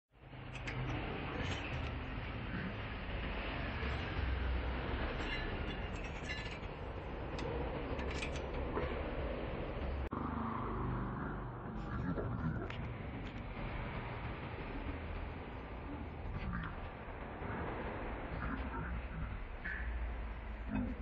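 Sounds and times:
low background rumble: 11.0 - 21.0.

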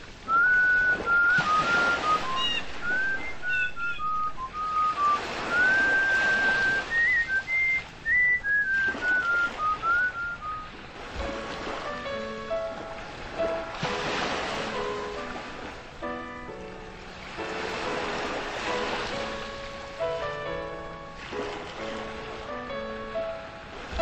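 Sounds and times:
waves rushing on shore: 0.0 - 24.0
person whistling a melody: 0.3 - 10.7.

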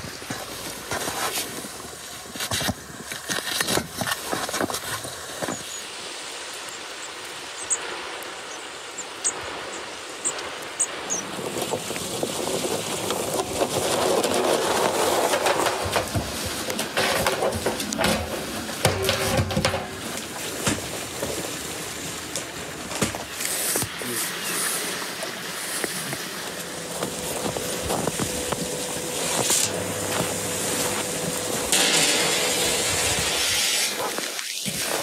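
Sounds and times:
barrel rolling over snow: 0.0 - 6.7, 9.4 - 35.0
wooden barrel knocks: 15.5 - 20.9.

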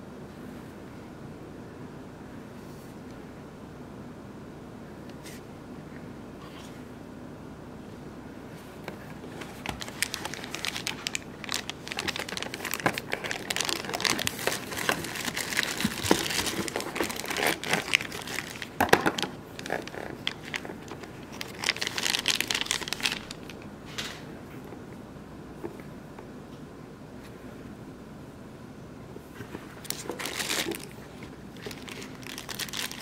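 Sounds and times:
plastic bags crinkling: 9.1 - 23.6, 29.8 - 33.0.

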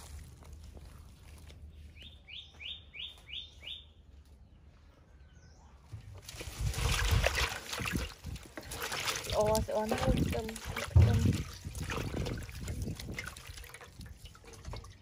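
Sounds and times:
water splashing in metal basin: 6.2 - 15.0.

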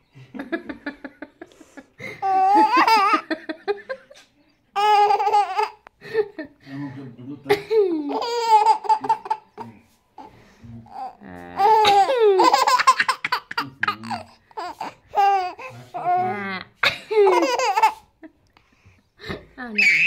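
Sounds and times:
infant laughing and squealing: 19.8 - 20.0.

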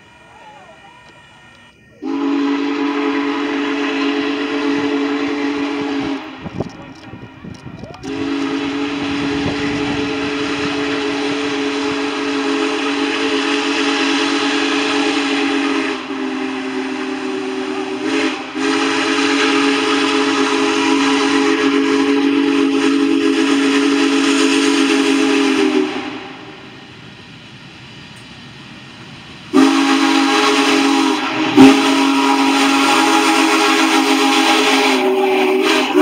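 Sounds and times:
steam locomotive chime whistle: 0.0 - 26.6, 29.5 - 36.0
hiss of steam: 0.0 - 36.0.

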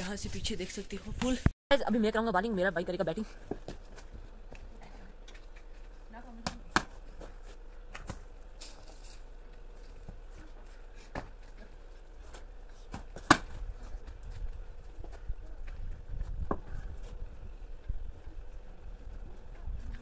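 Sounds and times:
wind rumble on microphone: 13.6 - 20.0.

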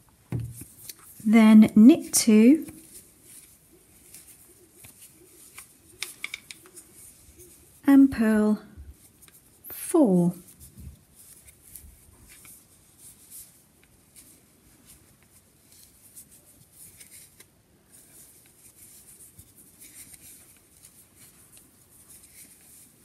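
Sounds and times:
knitting needles clicking: 4.8 - 6.8.

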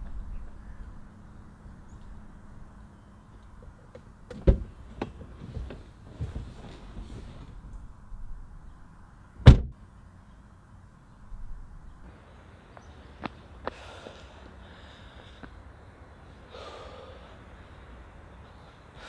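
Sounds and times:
loud thump: 9.4 - 9.8
woman breathing: 13.6 - 15.7, 16.4 - 17.9.

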